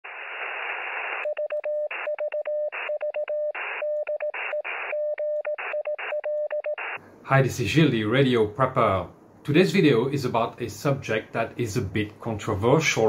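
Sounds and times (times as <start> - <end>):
radio static hiss: 0.0 - 1.3, 3.6 - 5.0, 6.8 - 13.0
morse code beeps: 1.2 - 7.0.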